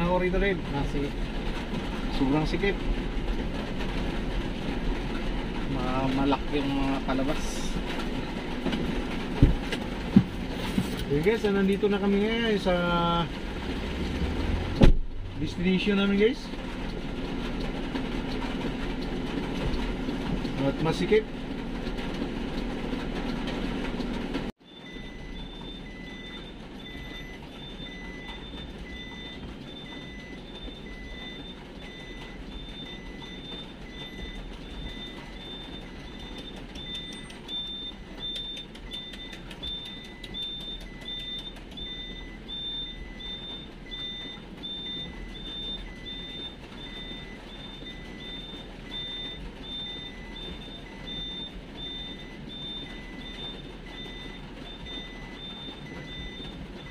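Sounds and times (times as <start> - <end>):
engine running: 0.0 - 56.9
reversing alarm beeping: 24.6 - 56.9.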